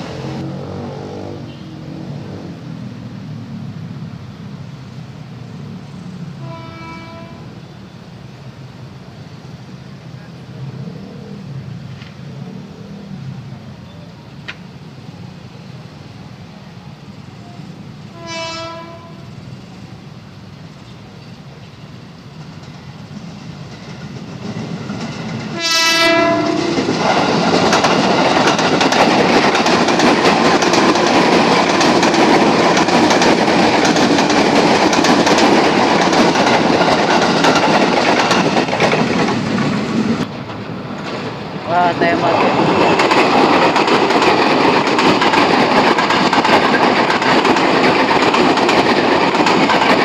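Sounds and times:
train wheel and rail noise: 0.0 - 50.0
train horn: 0.4 - 2.1, 6.4 - 7.8, 18.1 - 19.4, 25.5 - 26.9.

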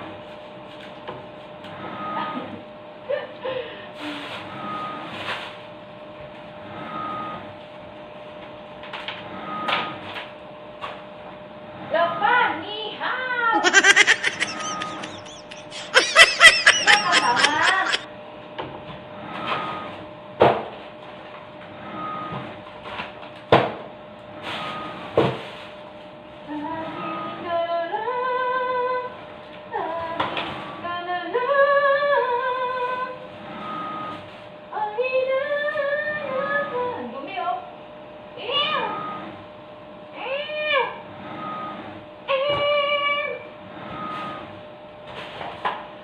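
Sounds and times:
person laughing loudly: 13.6 - 18.0.

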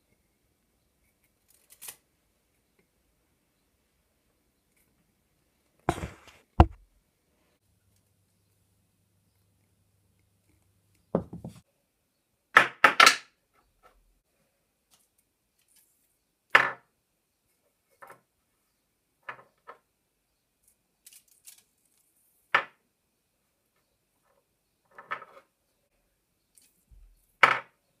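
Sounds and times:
louder knocks on wooden bench: 5.9 - 6.8.

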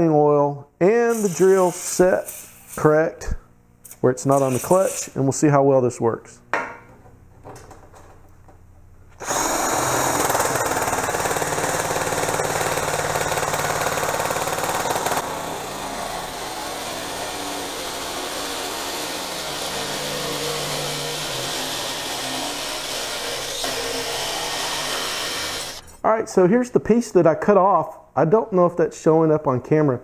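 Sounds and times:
drill-driven nibbler cutting metal: 9.2 - 25.9.

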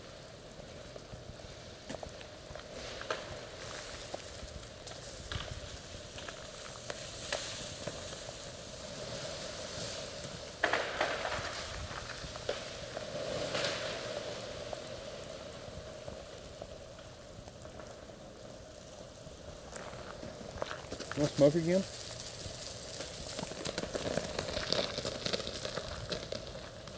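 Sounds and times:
freezing rain pattering on ice: 0.0 - 26.9
ice-laden limbs snapping: 19.8 - 26.9.

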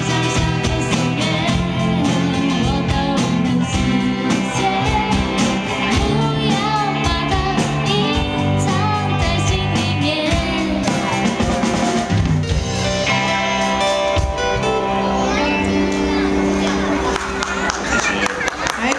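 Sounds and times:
woman singing with vibrato: 0.0 - 10.9
bass guitar: 0.0 - 18.9
drum kit beat: 0.0 - 18.9
electric guitar: 0.0 - 18.9.

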